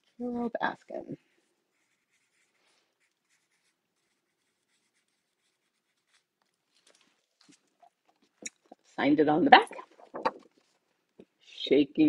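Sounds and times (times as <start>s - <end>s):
pen scratching on paper: 1.7s - 6.6s.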